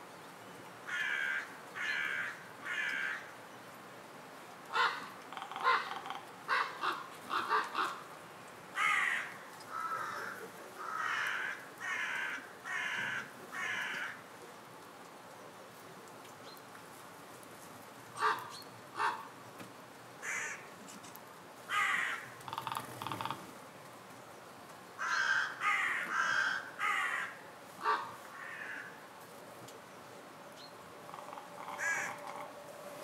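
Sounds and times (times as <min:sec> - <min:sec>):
crows cawing: 0:00.9 - 0:03.3, 0:04.7 - 0:08.0, 0:08.8 - 0:14.2, 0:20.2 - 0:20.7, 0:21.7 - 0:23.4, 0:25.0 - 0:29.0, 0:31.1 - 0:32.5.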